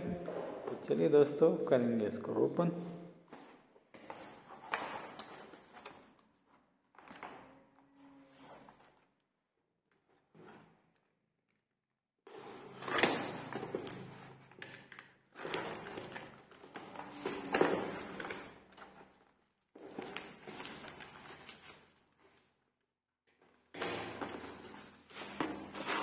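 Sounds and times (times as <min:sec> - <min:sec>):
packaging rustling and crinkling: 0:13.3 - 0:22.7.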